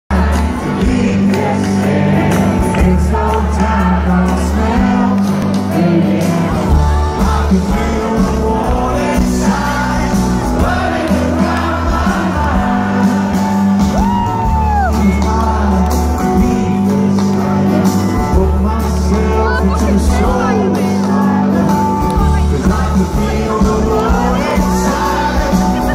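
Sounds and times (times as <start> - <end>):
person singing lead vocal: 0.1 - 25.9
rock band playing live: 0.1 - 25.9
audience shouting: 10.5 - 15.8.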